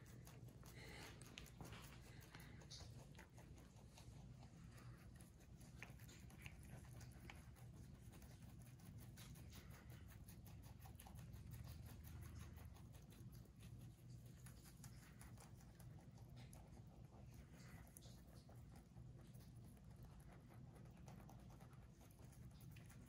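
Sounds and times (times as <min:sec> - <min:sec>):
low room hum: 0:00.0 - 0:23.0
rabbits chewing greens: 0:00.0 - 0:23.0.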